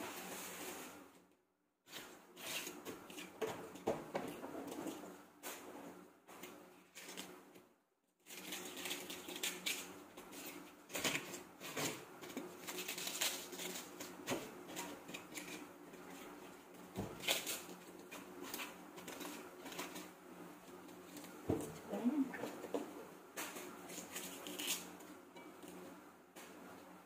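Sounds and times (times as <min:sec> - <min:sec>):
hands tearing and crumbling food: 0:08.2 - 0:16.2.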